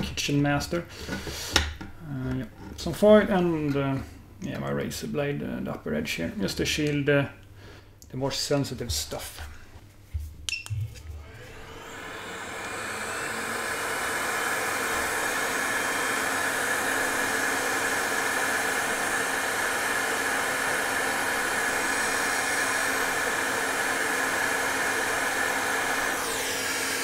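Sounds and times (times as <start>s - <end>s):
hot air blower rushing: 10.9s - 27.0s.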